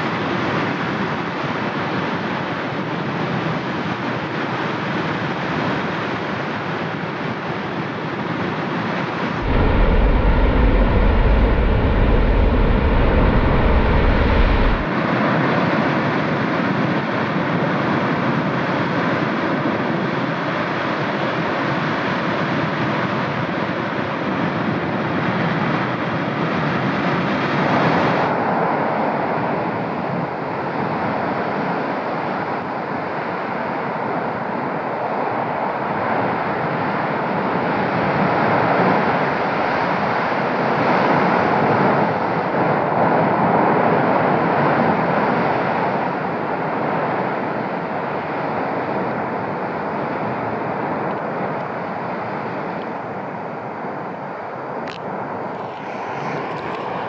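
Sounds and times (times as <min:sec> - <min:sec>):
heavy deep rumble: 0:09.4 - 0:14.9, 0:55.4 - 0:57.0
volcano vent rushing noise: 0:09.4 - 0:14.9, 0:55.2 - 0:57.0.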